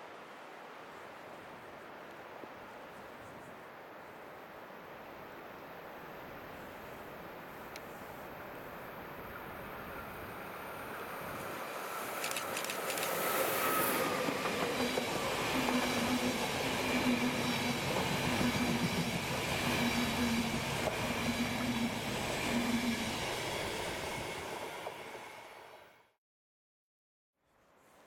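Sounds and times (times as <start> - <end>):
locomotive hiss and whine: 2.8 - 25.9
train coaches rumbling past: 9.2 - 26.0.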